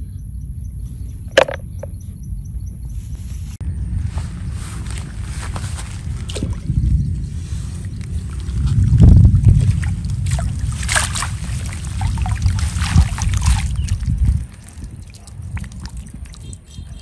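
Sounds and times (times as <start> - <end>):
deep rumble: 0.0 - 16.4
water sloshing and splashing: 7.5 - 17.0
water streaming off net: 9.7 - 13.9.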